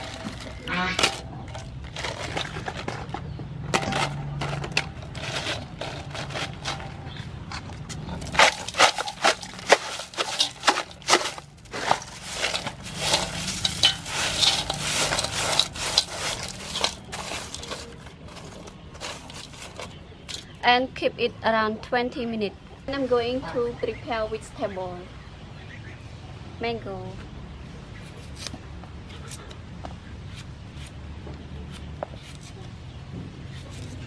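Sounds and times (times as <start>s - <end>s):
ice clattering on shell and metal: 0.0s - 3.1s, 3.7s - 7.0s, 8.2s - 20.5s
hand pressing ice: 8.0s - 20.5s.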